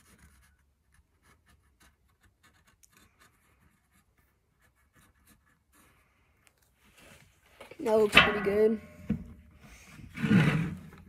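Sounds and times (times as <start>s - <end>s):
marker scratching on wood: 0.0s - 6.1s.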